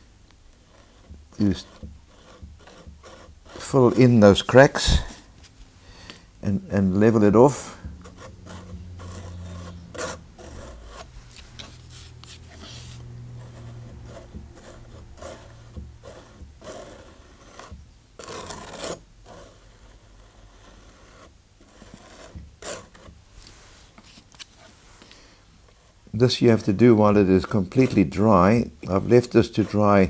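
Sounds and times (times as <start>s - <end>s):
painting knife scraping paste: 0.6s - 5.6s, 6.9s - 24.7s, 28.8s - 30.0s.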